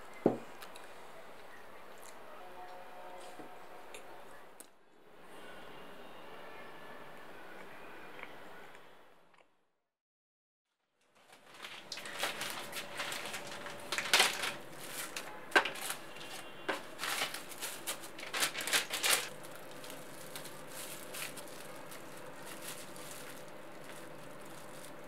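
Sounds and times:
plastic wrap crinkling: 11.0s - 25.0s
faint steady hum: 11.3s - 25.0s.

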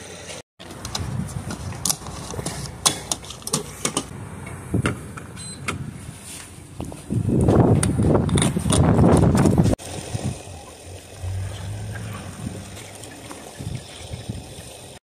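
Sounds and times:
clicks and clunks at gas pump: 0.6s - 5.9s, 6.8s - 9.7s
loud rushing noise: 11.1s - 13.2s.

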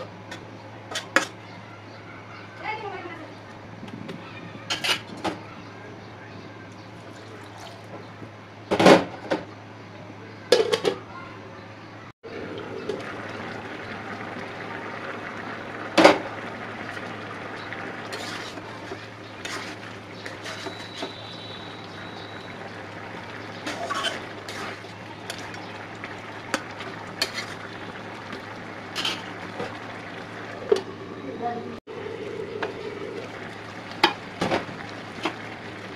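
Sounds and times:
low hiss of pot cooking: 12.3s - 35.9s
metal spatula scraping metal pot: 18.1s - 21.3s, 23.6s - 25.4s, 27.2s - 27.6s.

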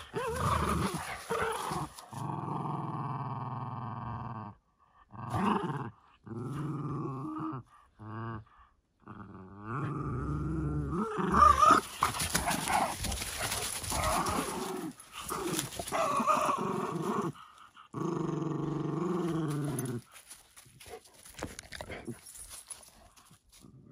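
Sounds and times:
dogs scuffling: 0.0s - 2.2s, 11.7s - 16.5s
dogs growling: 0.0s - 23.9s.

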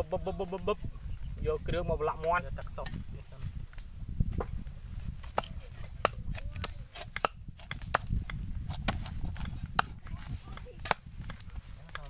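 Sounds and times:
cleaver chopping on wooden board: 5.2s - 12.0s.

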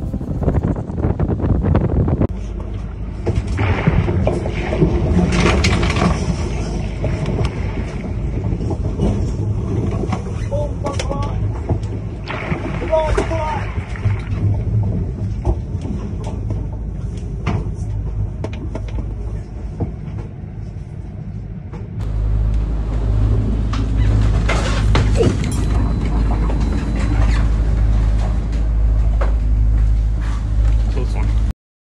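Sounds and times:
wind rushing: 0.0s - 2.3s
low cabin rumble: 0.0s - 31.5s
rough sea: 0.0s - 31.5s.

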